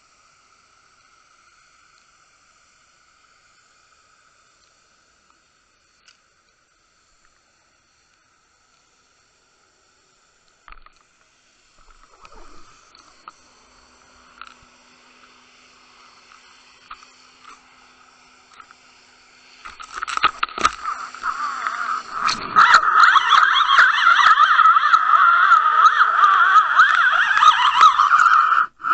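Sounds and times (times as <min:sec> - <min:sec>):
faint steady hum: 0:00.0 - 0:28.9
crackling: 0:10.4 - 0:14.7, 0:19.6 - 0:28.9
underwater rushing: 0:11.8 - 0:13.3, 0:20.5 - 0:28.9.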